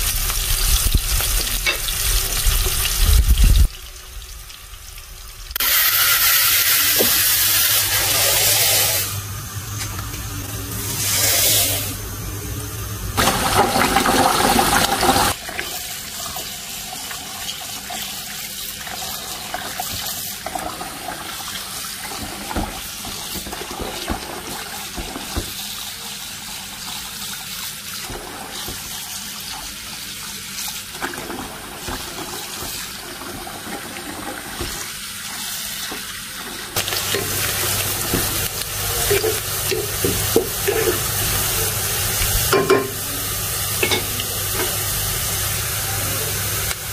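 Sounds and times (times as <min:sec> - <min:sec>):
onions sizzling in oil: 0:00.0 - 0:20.4, 0:21.4 - 0:46.9
tap water running into bowl: 0:13.2 - 0:26.0, 0:30.8 - 0:43.1.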